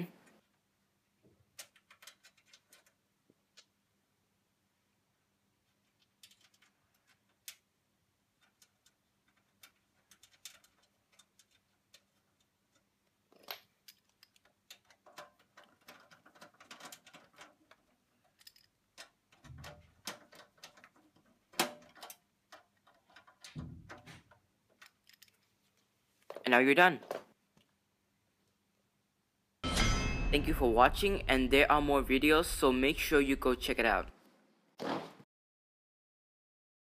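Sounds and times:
screws clicking in metal cage: 1.6 - 3.0, 6.0 - 7.6, 8.4 - 23.6.

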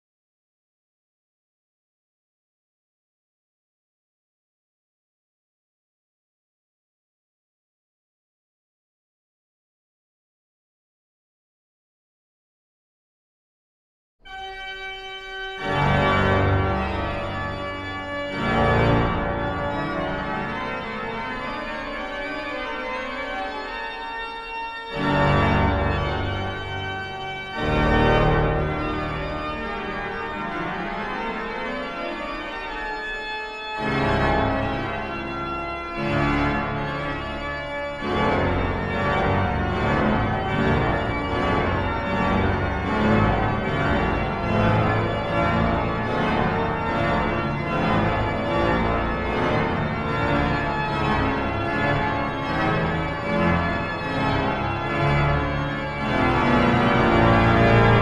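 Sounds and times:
pipe organ playing chords: 14.3 - 58.0.

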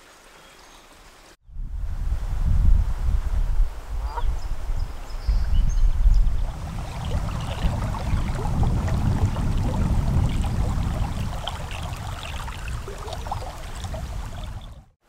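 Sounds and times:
river water rippling: 0.0 - 1.4, 6.1 - 15.0
wind rumble on microphone: 1.4 - 15.0
small splashes: 6.2 - 15.0.

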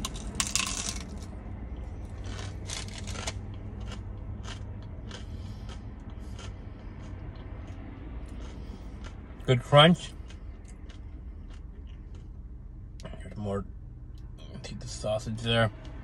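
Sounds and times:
crunchy chewing: 1.8 - 12.4
crunchy bite into taco shell: 2.1 - 7.1.

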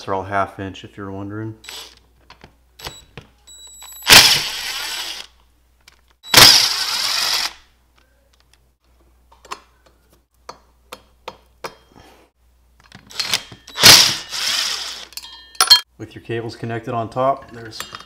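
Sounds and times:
power driver spinning: 4.0 - 5.3, 6.3 - 7.6, 13.1 - 15.1.

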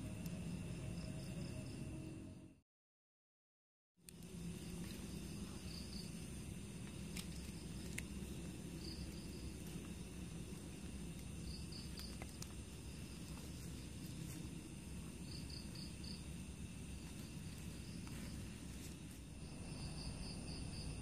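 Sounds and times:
crickets trilling: 0.0 - 2.5, 4.1 - 21.0
campfire embers crackling: 4.0 - 19.6.

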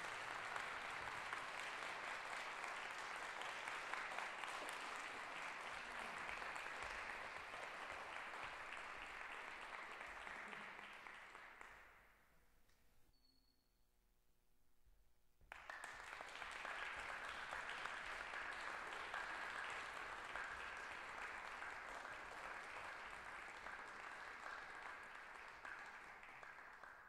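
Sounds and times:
audience applauding: 0.0 - 11.9, 15.5 - 27.0.

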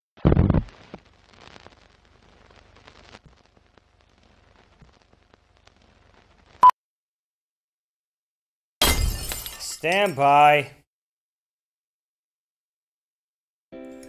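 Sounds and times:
faint crackle and clicks: 0.2 - 6.7.

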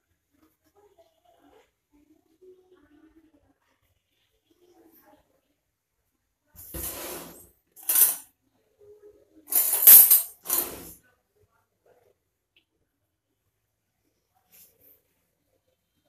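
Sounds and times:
kitchenware clinking and clattering: 6.6 - 8.2, 9.5 - 11.0.

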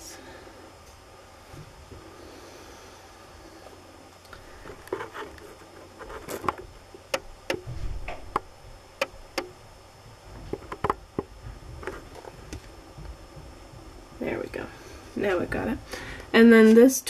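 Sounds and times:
low handling rumble: 6.7 - 16.8.

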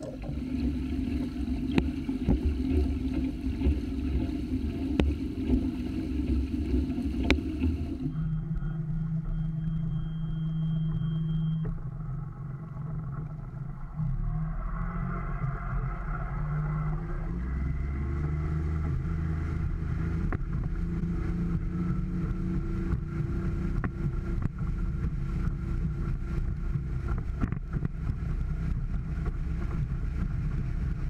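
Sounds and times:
thin high whine: 0.0 - 18.1
outboard motor running: 0.0 - 31.0.

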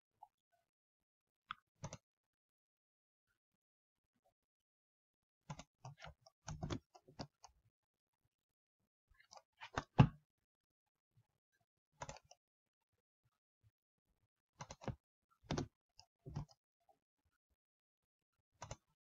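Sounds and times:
mouse and keyboard clicking: 14.6 - 15.6.

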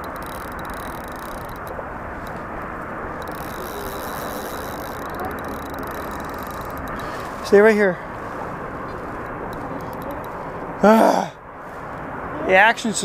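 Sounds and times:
outdoor background rumble: 0.0 - 13.0.

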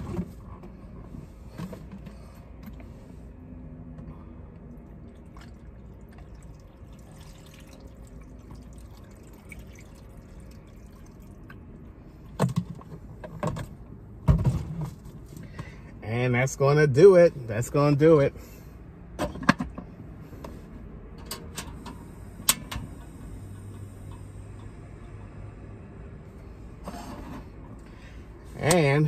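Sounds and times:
water pouring into a pot: 4.9 - 11.4.

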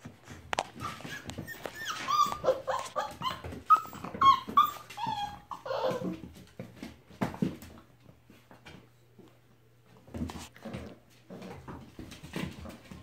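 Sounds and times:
puppies whining and yipping: 0.6 - 6.4.

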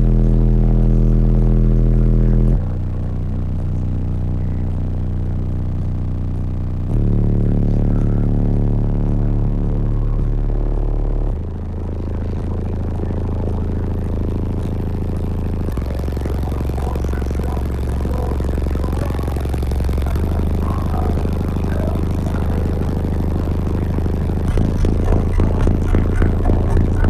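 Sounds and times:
deep bass music in a car: 0.0 - 27.0
pulsing beat: 6.9 - 27.0.

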